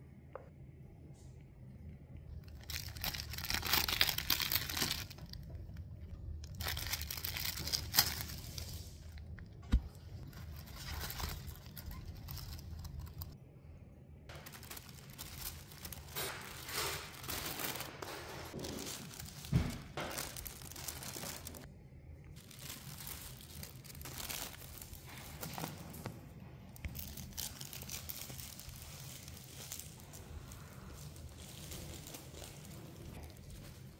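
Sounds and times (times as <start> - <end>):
tissue paper crinkling: 2.5 - 5.4, 6.5 - 9.1, 10.2 - 13.4, 14.3 - 21.7, 22.4 - 26.1, 26.8 - 33.9.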